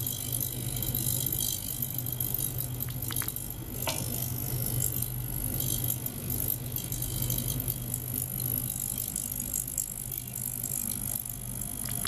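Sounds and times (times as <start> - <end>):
crackling fizz of water: 2.4 - 4.0.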